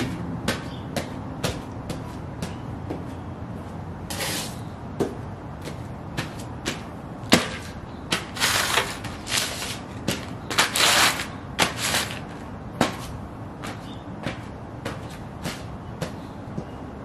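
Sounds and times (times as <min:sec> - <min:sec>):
boot soles thudding: 0:00.0 - 0:16.8
paper crinkling underfoot: 0:08.3 - 0:12.4.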